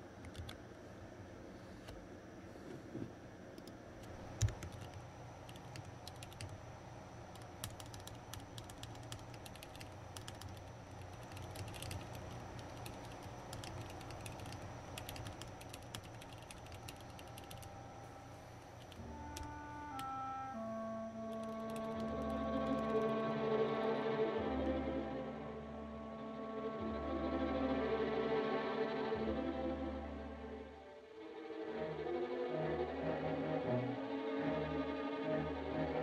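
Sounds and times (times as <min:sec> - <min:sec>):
mechanical keyboard typing: 0:00.2 - 0:00.6, 0:03.6 - 0:06.6, 0:07.3 - 0:17.7, 0:18.8 - 0:20.1, 0:21.3 - 0:23.1
soft music with held tones: 0:17.6 - 0:36.0.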